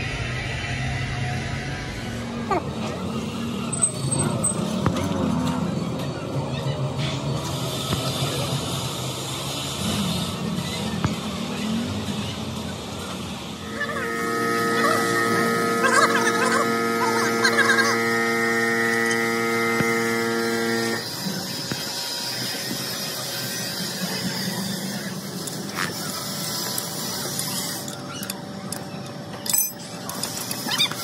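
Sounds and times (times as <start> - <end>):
machine whine: 0.0 - 31.0.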